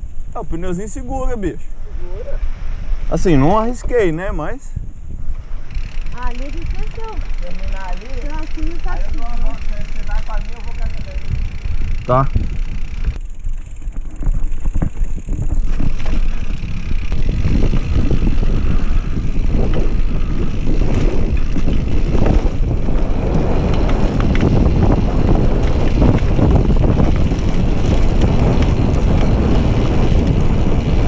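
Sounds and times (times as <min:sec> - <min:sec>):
bike tyres rolling: 0:00.0 - 0:31.0
wind buffeting microphone: 0:00.0 - 0:31.0
bike clattering over bumps: 0:05.2 - 0:31.0.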